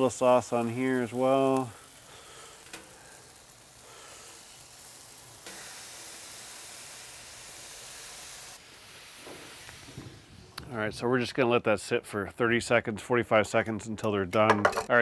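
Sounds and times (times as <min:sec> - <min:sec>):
sauce sizzling on grill: 0:00.0 - 0:11.5.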